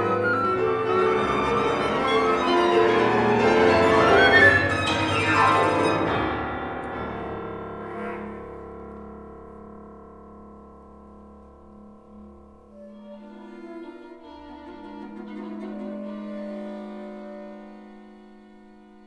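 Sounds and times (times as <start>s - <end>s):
flute: 0.0s - 6.2s, 12.7s - 19.0s
clarinet: 0.0s - 8.6s, 12.7s - 19.0s
violin: 0.0s - 8.6s, 12.7s - 19.0s
cello: 0.0s - 9.4s, 12.0s - 19.0s
piano: 0.0s - 19.0s.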